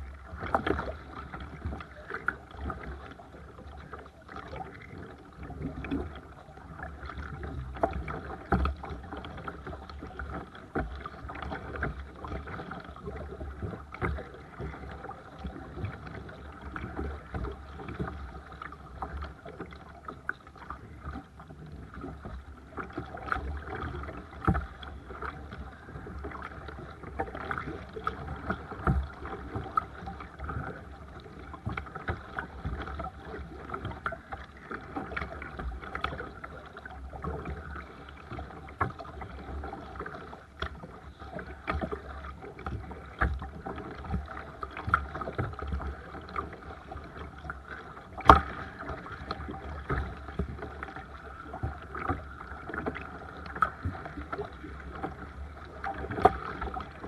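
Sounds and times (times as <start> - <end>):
water splashing and lapping: 0.0 - 57.0
paddle knocking on kayak hull: 21.8 - 57.0.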